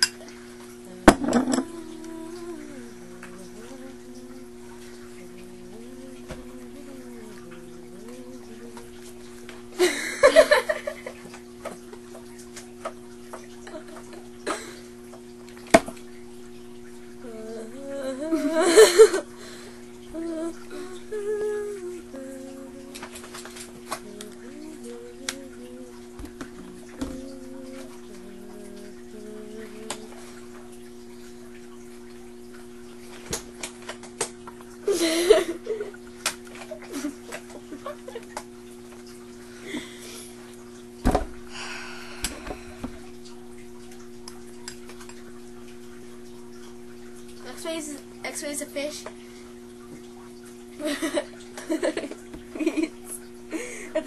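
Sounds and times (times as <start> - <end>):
steady low hum: 0.0 - 54.0
person humming a tune: 0.8 - 9.2, 17.2 - 23.2, 23.9 - 30.5
girl laughing loudly: 9.8 - 11.2, 18.3 - 19.3, 34.9 - 36.0.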